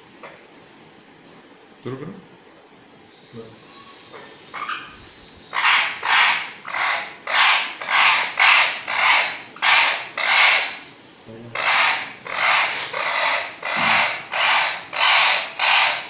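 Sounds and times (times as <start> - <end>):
parrot squawking harshly: 4.5 - 10.8, 11.5 - 16.0.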